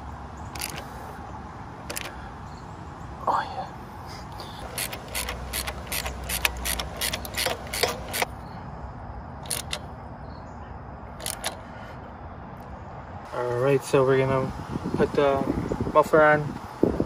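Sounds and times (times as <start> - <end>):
socket ratchet clicking: 0.5 - 0.9, 1.9 - 2.2, 4.6 - 8.3, 9.4 - 9.9, 11.2 - 11.6.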